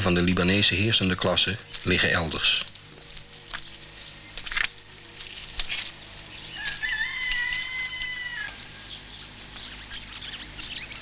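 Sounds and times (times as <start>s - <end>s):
rooster crowing: 6.4s - 9.1s.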